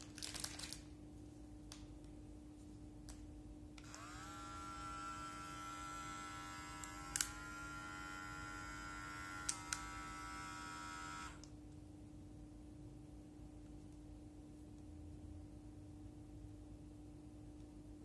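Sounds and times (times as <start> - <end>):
electric hair clipper humming: 3.8 - 11.5.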